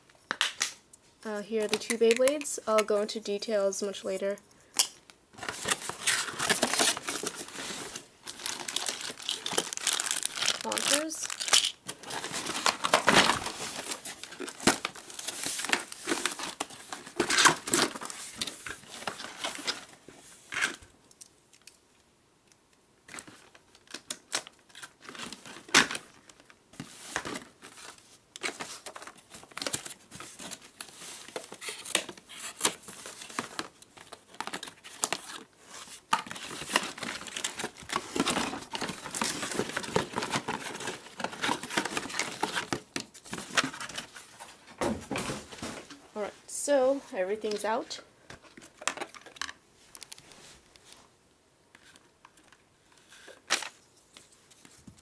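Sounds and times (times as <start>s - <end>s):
cardboard rustling and tearing: 5.4s - 20.0s, 26.8s - 45.9s.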